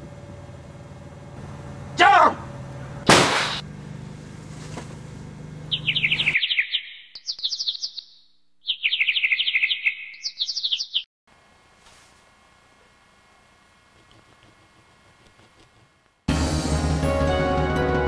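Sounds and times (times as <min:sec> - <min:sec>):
steady low hum: 0:00.0 - 0:06.4
small bird twittering: 0:05.7 - 0:11.1.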